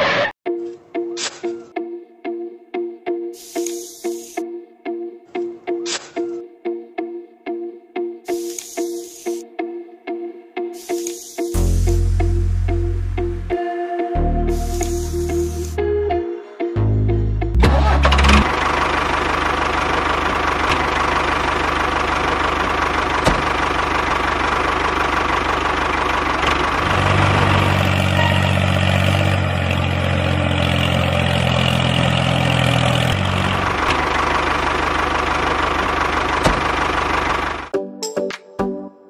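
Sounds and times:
tractor engine running: 17.5 - 37.7.

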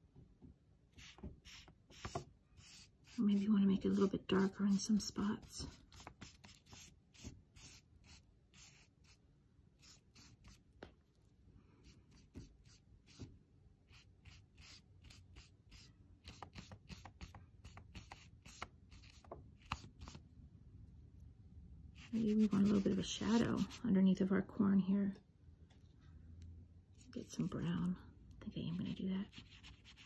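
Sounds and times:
faint brush swishes on paper: 22.0 - 23.8.

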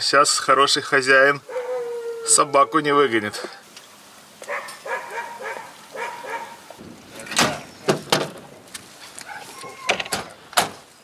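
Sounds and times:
dogs barking: 1.4 - 2.8, 4.4 - 6.8, 9.2 - 9.9
dogs whining: 1.5 - 2.9, 9.2 - 10.2.

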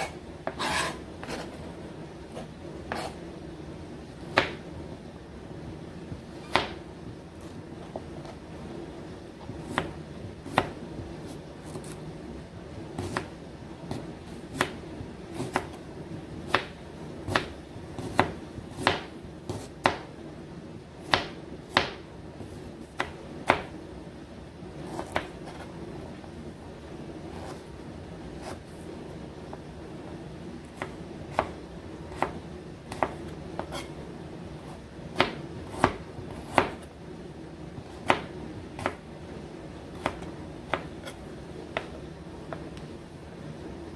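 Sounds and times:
faint steady hum: 0.0 - 43.9
knife chopping on plastic board: 4.3 - 4.6, 6.4 - 6.8, 13.0 - 13.3, 16.5 - 20.1, 21.0 - 22.0, 30.8 - 33.9, 35.2 - 36.9, 37.9 - 39.0, 39.9 - 42.9.

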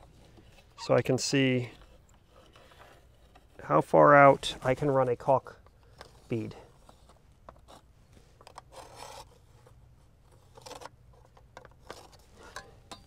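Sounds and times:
pencil scratching on metal: 8.7 - 9.4.

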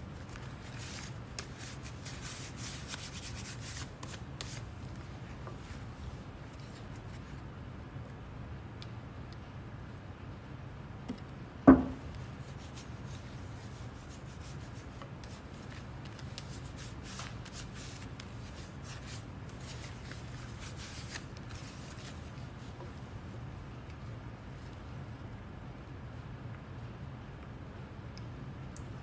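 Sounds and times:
sharp knock: 11.7 - 12.0.

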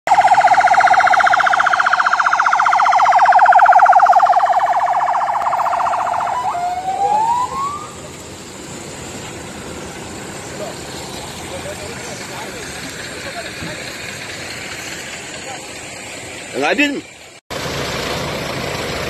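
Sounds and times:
electronic siren warble: 0.1 - 8.1
rising siren whoop: 0.1 - 8.1.

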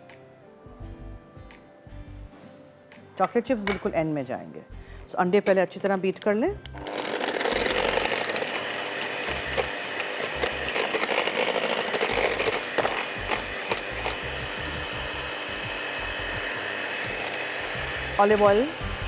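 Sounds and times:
electric hand mixer beating eggs: 6.8 - 19.0.

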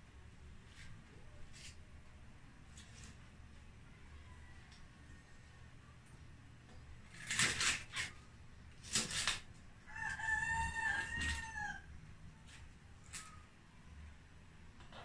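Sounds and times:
rooster crowing: 3.9 - 5.4, 9.8 - 12.0
knife crunching through vegetable: 7.1 - 8.2, 8.8 - 9.5.

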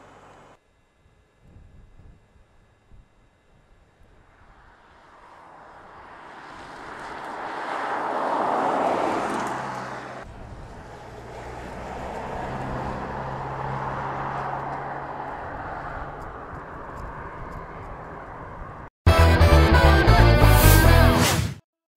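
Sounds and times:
low engine hum: 0.0 - 18.9
car driving past: 4.4 - 16.5.

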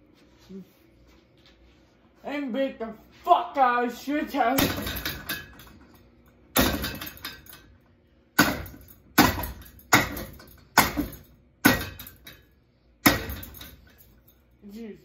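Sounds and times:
hammer striking fan motor housing: 4.5 - 14.4.

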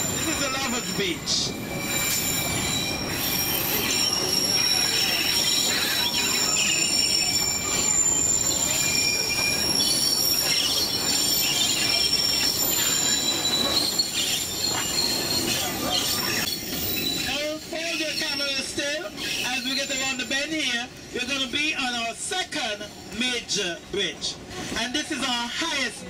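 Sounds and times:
high-pitched wheel squeals: 0.0 - 20.4
train wheels rumbling on track: 0.0 - 26.0.

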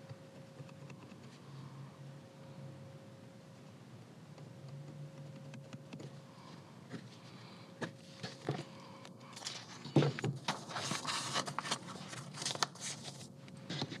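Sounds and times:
paper rustle: 9.4 - 14.0.

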